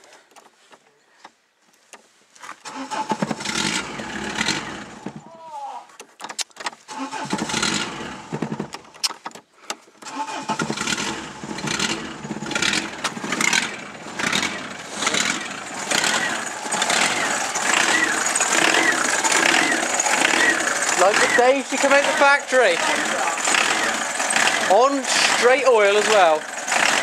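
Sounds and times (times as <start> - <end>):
diesel engine cranking: 2.6 - 5.3, 6.8 - 9.3, 10.0 - 27.0
diesel engine running unevenly: 2.8 - 5.2, 7.1 - 8.7, 10.1 - 27.0.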